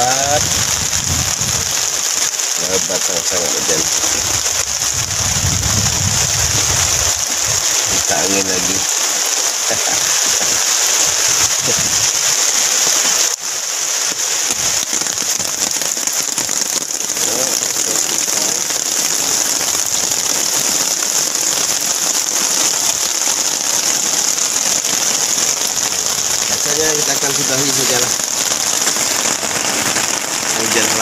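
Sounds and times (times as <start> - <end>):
heavy rain on river surface: 0.0 - 31.0.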